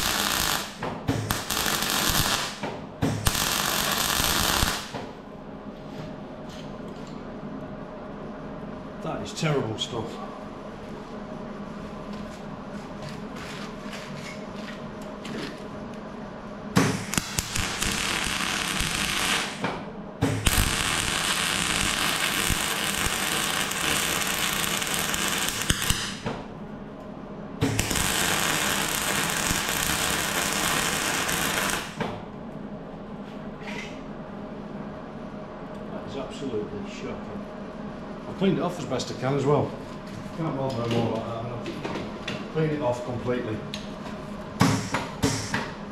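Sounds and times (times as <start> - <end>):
welding crackling and spitting: 0.0 - 2.6, 3.2 - 4.9, 17.0 - 19.6, 20.4 - 26.2, 27.6 - 32.0
welder talking: 9.0 - 10.5, 42.5 - 43.8.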